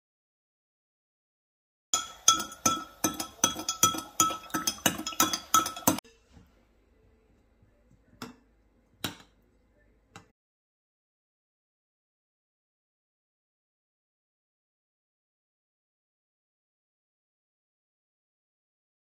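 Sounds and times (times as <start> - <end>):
spoon clinking glass jug: 2.0 - 6.2
spoon clinking glass bowl: 2.0 - 6.3.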